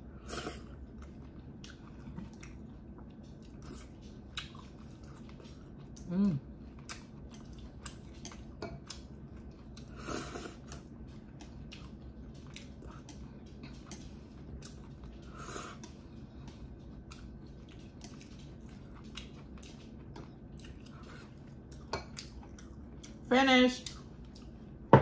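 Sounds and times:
chewing noodles: 0:00.0 - 0:24.8.

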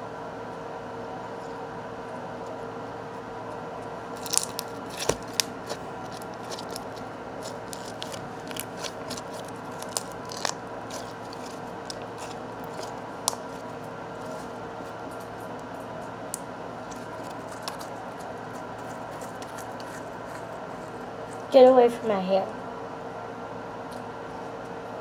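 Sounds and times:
slime squished by hand: 0:04.2 - 0:14.4.

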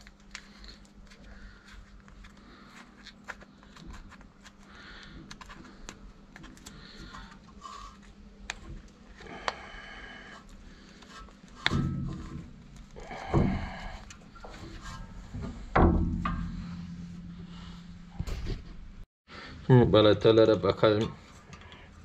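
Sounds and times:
heavy metal thunks: 0:11.7 - 0:18.9.

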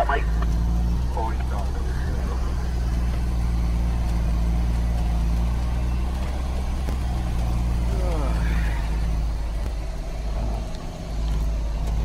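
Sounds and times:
diesel truck engine droning: 0:00.0 - 0:12.0.

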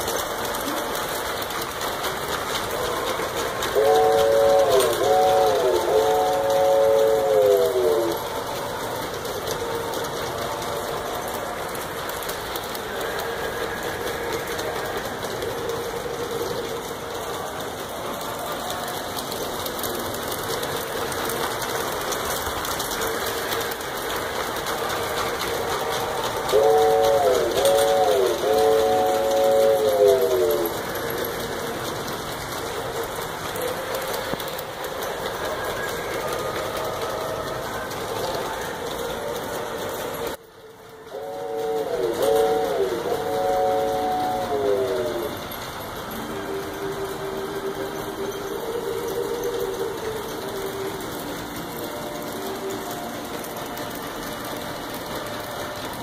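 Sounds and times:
model trains running on track: 0:00.0 - 0:56.0
multi-note train whistle: 0:03.6 - 0:08.4, 0:25.8 - 0:31.0, 0:40.6 - 0:45.4, 0:46.2 - 0:56.0.

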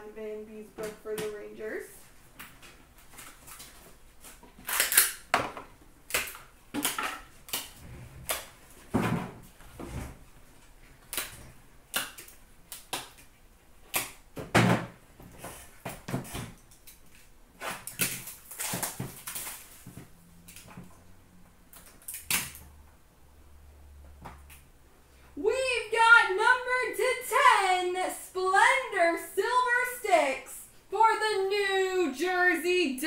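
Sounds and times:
plastic packaging clicks and rustles: 0:02.4 - 0:09.7, 0:15.3 - 0:21.0.

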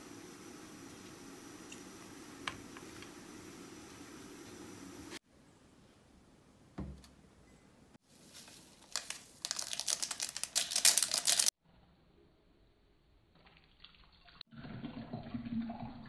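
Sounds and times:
plastic sachet crinkling and tearing: 0:08.2 - 0:11.5
water pouring into mug: 0:13.5 - 0:16.0.

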